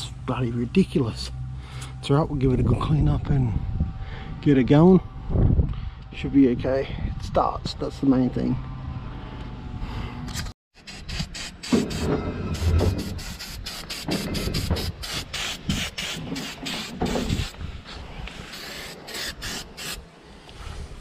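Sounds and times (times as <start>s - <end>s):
low rumbling: 0.0s - 10.5s
aerosol spray can hissing: 12.6s - 17.5s, 18.4s - 20.0s.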